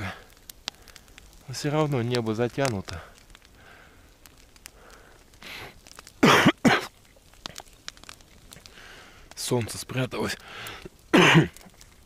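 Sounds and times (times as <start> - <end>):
soft breath: 3.0 - 5.8, 8.6 - 9.4, 10.4 - 11.0
man coughing: 6.2 - 6.9, 11.1 - 11.6.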